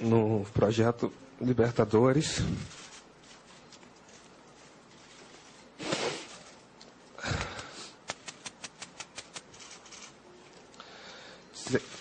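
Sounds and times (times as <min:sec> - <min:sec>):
sniff: 0:05.8 - 0:06.4
heavy breath into microphone: 0:10.8 - 0:11.5.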